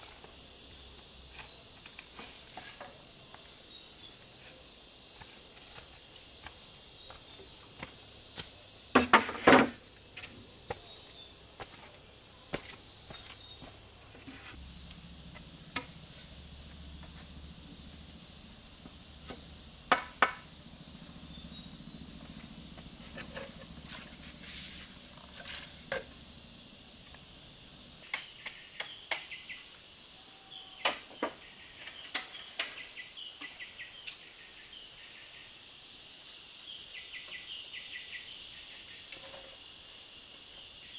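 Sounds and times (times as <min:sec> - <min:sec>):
insects buzzing: 0:00.0 - 0:40.9
high chirping calls: 0:17.7 - 0:26.8
sharp knocks and cracks: 0:19.2 - 0:20.5.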